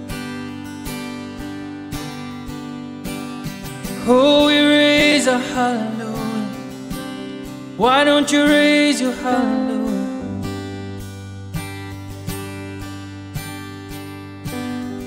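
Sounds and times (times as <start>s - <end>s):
acoustic guitar strumming: 0.0s - 15.0s
person singing: 4.0s - 7.0s, 7.8s - 10.7s.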